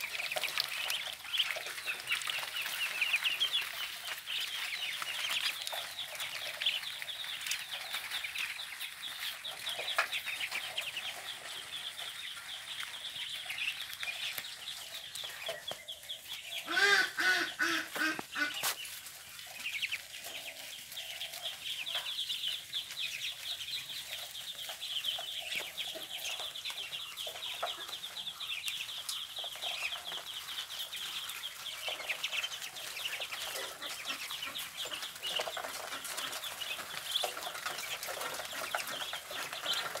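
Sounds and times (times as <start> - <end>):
ducklings peeping: 0.0 - 40.0
louder lower duckling call: 16.7 - 18.6.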